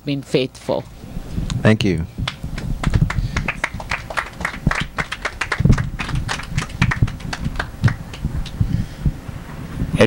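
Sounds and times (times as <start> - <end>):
small audience applauding: 2.3 - 8.6.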